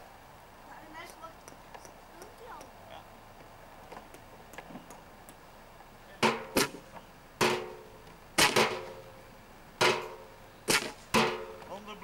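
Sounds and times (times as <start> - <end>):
sharp strikes on resonant object: 6.2 - 6.8.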